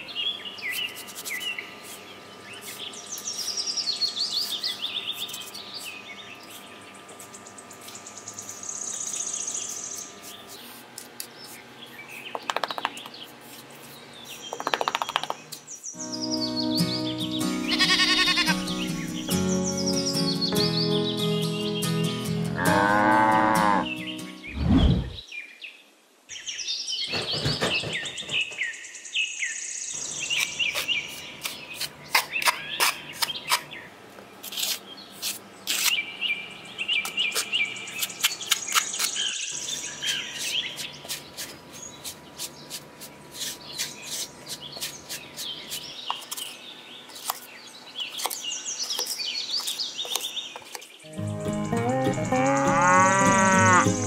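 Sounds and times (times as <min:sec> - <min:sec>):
birds chirping: 0:00.0 - 0:54.0
metal trowel scooping sand: 0:34.4 - 0:36.0.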